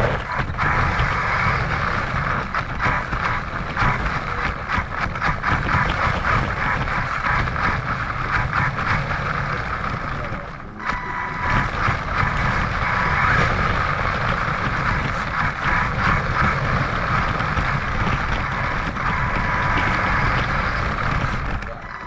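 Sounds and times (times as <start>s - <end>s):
electric rc car motor whir: 0.0s - 22.0s.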